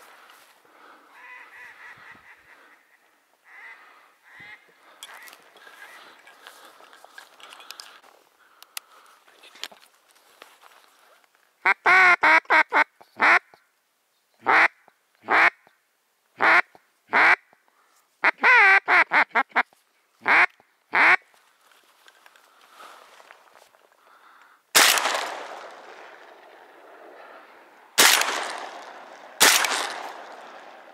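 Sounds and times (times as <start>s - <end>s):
duck quacks: 1.1s - 6.1s, 11.6s - 13.6s, 14.4s - 15.7s, 18.2s - 21.2s
shotgun shot echoing: 24.8s - 30.9s.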